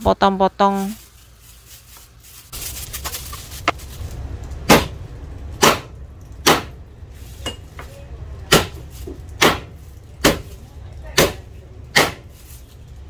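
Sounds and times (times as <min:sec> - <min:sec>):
cleaver chopping on cutting board: 0:05.6 - 0:06.7, 0:08.5 - 0:08.8, 0:09.4 - 0:10.5, 0:11.2 - 0:12.2.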